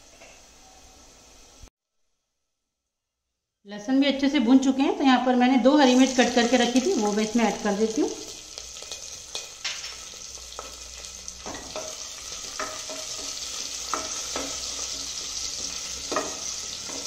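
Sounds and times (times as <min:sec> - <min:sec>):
spices sizzling in hot oil: 0:05.7 - 0:17.0
spatula scraping and tapping pot: 0:11.4 - 0:17.0.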